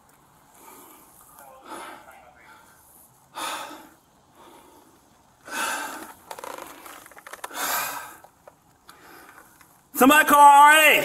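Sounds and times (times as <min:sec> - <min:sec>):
man gasping breaths: 0:00.5 - 0:06.2.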